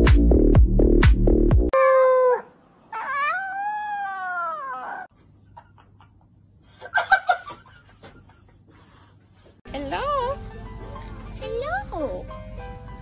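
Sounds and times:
puppy howling: 1.8s - 5.1s.

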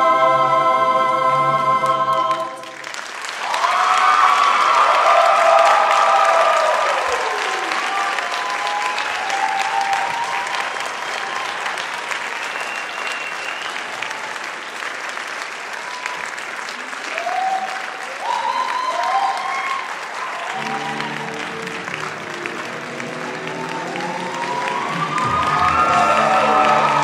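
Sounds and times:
music: 0.0s - 2.9s, 20.4s - 27.0s
audience applauding: 2.2s - 27.0s
shouts and whoops: 3.4s - 12.4s, 17.0s - 21.8s, 23.3s - 27.0s.

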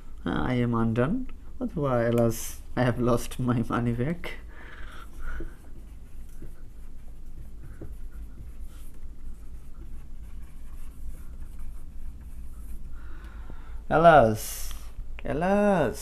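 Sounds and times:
steady low hum: 0.0s - 16.0s
marker scratching on whiteboard: 5.1s - 13.0s
light marker taps: 7.3s - 9.1s.

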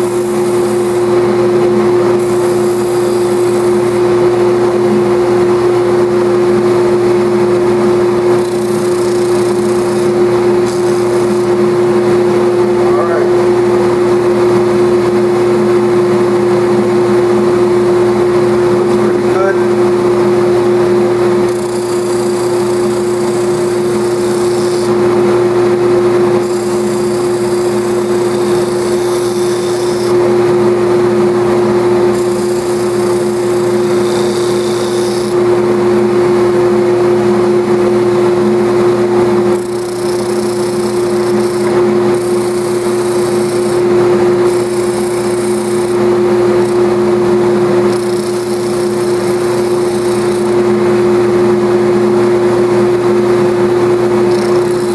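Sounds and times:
wood scratching on sanding disc: 0.0s - 1.1s, 2.1s - 4.1s, 8.4s - 11.7s, 21.5s - 25.0s, 26.3s - 30.3s, 32.1s - 35.4s, 39.5s - 47.0s, 47.8s - 50.6s, 54.3s - 54.9s
dust extraction blower: 0.0s - 54.9s
sander humming: 0.0s - 54.9s.

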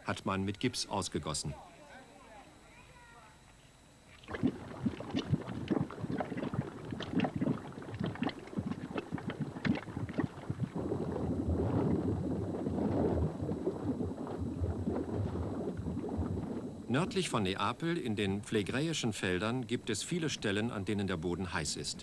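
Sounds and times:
mud pool bubbling and popping: 4.1s - 19.5s.

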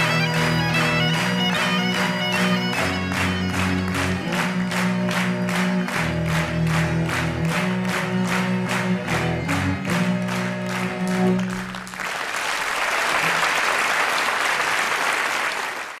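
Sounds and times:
cello and bagpipe music: 0.0s - 12.0s
audience applauding: 0.0s - 16.0s
clapped beat: 0.0s - 16.0s.

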